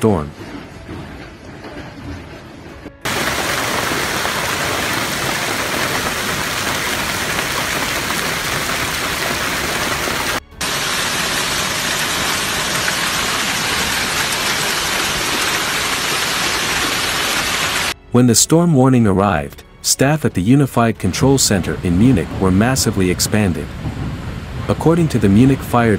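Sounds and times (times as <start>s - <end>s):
heavy hail pelting: 3.0s - 18.0s.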